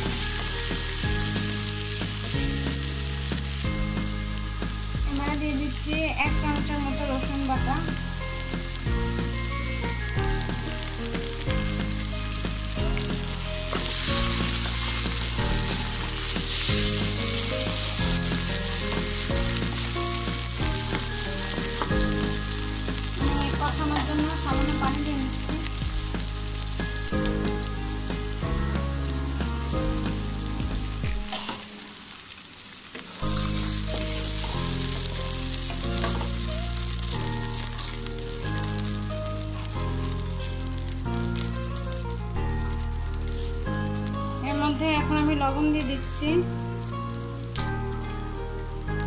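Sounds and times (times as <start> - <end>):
background music with bass: 0.0 - 31.3, 33.2 - 49.0
onions sizzling in hot oil: 0.0 - 49.0
spatula stirring in wok: 8.2 - 30.4, 33.1 - 38.7.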